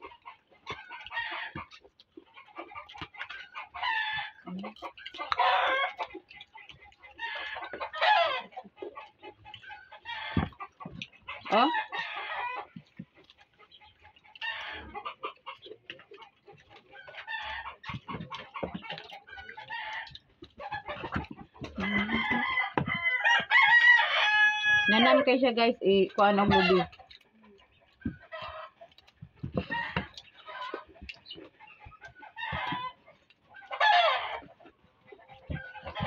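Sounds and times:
chickens clucking: 0.0s - 36.0s
rooster crowing: 7.4s - 8.5s, 21.7s - 25.2s, 33.7s - 34.5s.

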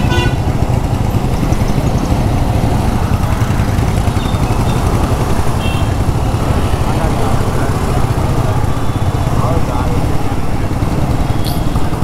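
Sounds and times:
scooter engine running: 0.0s - 12.0s.

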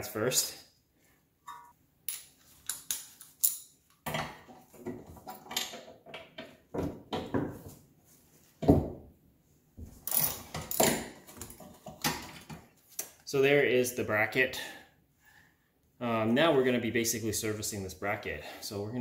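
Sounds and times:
metallic clinks and scrapes: 10.0s - 11.8s.

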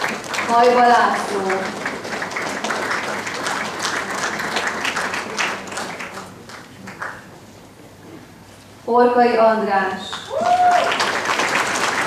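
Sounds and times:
audience applauding: 0.0s - 7.4s, 10.2s - 12.0s.

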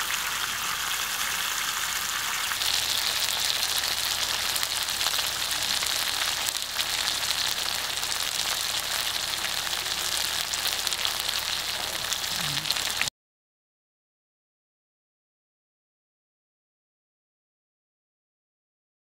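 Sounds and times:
curry sizzling in a pan: 0.0s - 13.1s.

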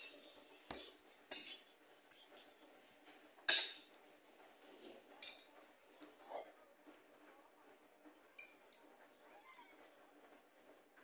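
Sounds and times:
cutlery clinking on a plate: 0.0s - 4.0s, 5.2s - 5.6s, 8.4s - 8.8s.

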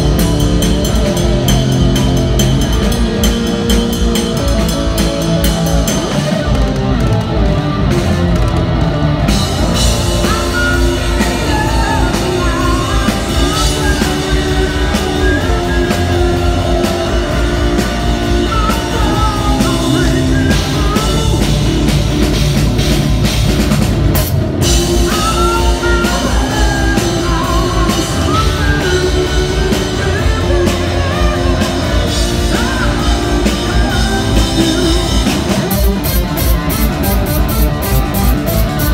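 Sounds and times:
distorted electric guitar: 0.0s - 38.9s
drum kit: 0.0s - 38.9s
electric bass: 0.0s - 38.9s
man singing lead vocal: 10.1s - 22.0s, 24.9s - 36.2s.

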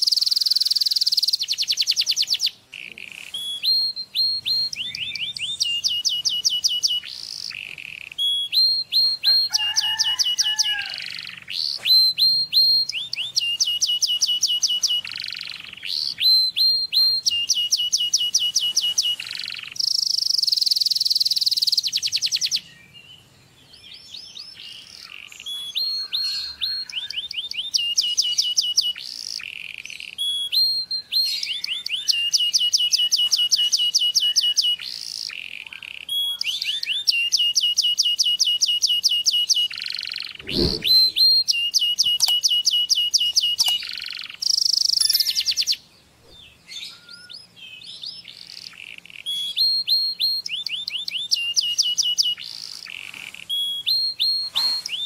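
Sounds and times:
canary singing: 0.0s - 22.7s, 24.0s - 45.9s, 46.5s - 55.0s.

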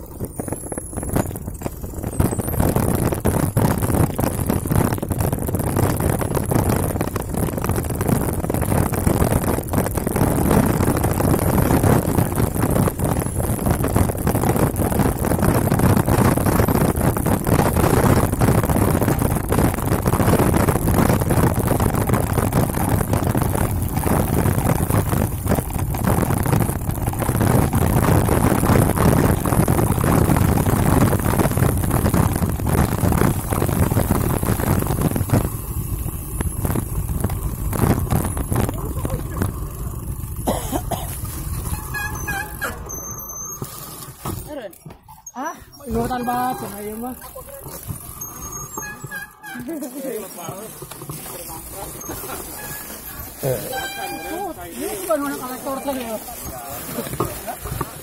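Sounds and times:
bike rattling over rough trail: 0.0s - 58.0s.

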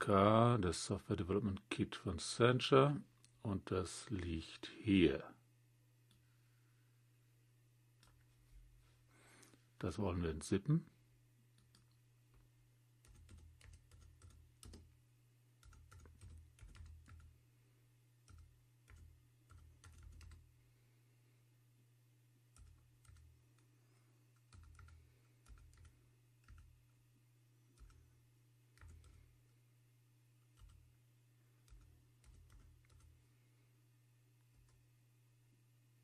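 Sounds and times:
steady low hum: 0.0s - 36.0s
keyboard typing: 13.0s - 14.9s, 15.6s - 17.4s, 18.2s - 20.5s, 22.5s - 23.7s, 24.3s - 27.0s, 27.8s - 28.1s, 28.7s - 29.5s, 30.4s - 31.0s, 31.6s - 33.2s.

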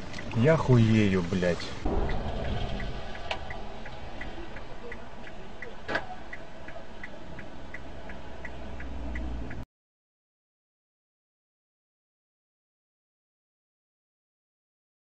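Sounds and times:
low engine rumble: 0.0s - 9.6s.

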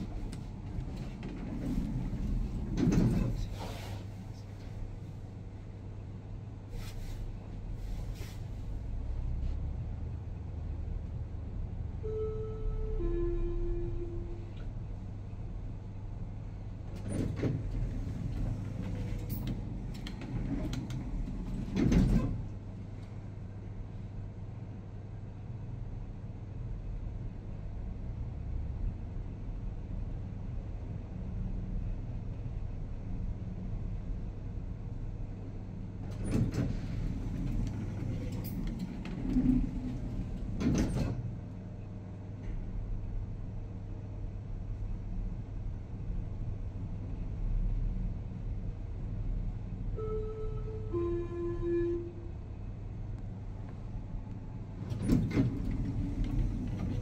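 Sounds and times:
lift sliding doors running: 0.0s - 5.0s, 16.7s - 23.5s, 35.8s - 41.8s, 53.8s - 57.0s.

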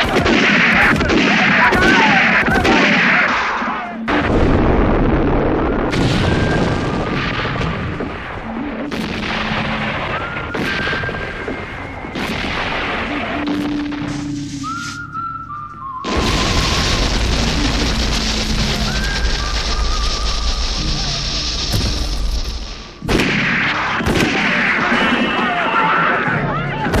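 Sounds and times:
gunfire: 0.0s - 14.3s, 21.7s - 25.7s
heavy cannon booms: 4.1s - 14.2s.

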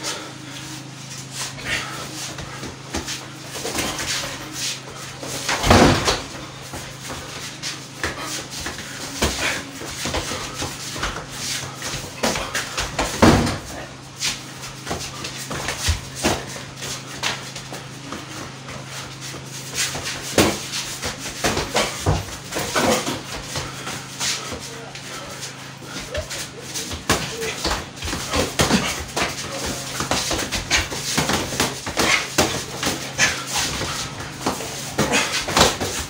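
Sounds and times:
boxing gloves landing punches: 5.2s - 7.3s, 8.0s - 13.7s, 19.8s - 23.8s, 26.9s - 36.0s.

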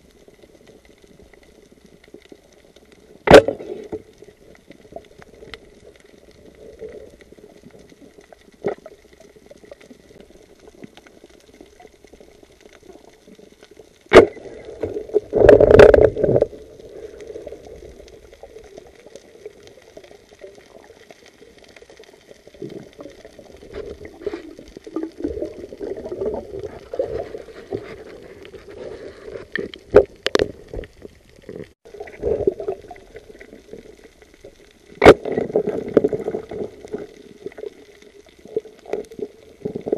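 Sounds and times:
muffled underwater hiss: 0.0s - 39.9s
sharp crack: 3.2s - 3.9s, 14.1s - 16.3s, 35.0s - 36.2s
spear scraping rock: 14.1s - 16.6s, 23.6s - 24.6s, 26.3s - 32.6s
underwater clicks: 14.1s - 28.6s, 29.4s - 39.9s.

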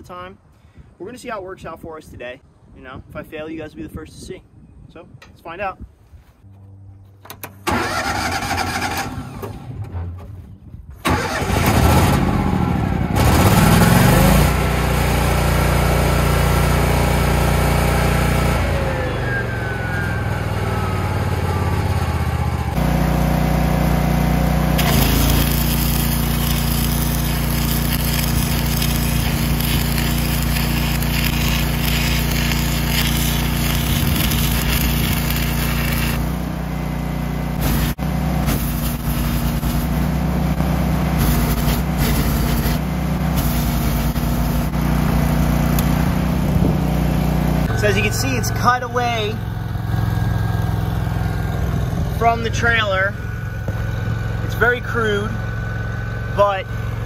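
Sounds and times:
generator engine running: 7.4s - 9.8s, 11.0s - 57.0s
engine cranking: 7.4s - 9.9s, 11.0s - 12.2s.

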